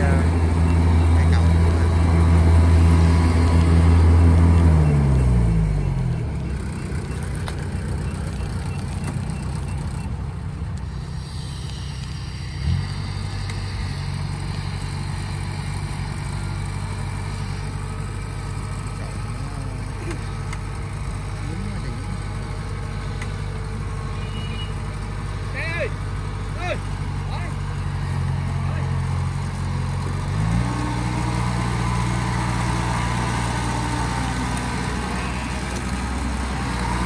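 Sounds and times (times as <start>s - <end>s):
farm machine engine running: 0.0s - 37.0s.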